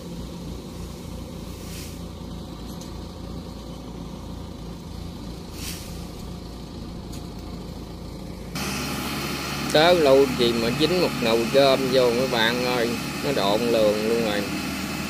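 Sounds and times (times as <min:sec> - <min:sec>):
harvester engine idling: 0:00.0 - 0:15.0
faint brief hisses: 0:01.5 - 0:02.1, 0:05.5 - 0:06.1.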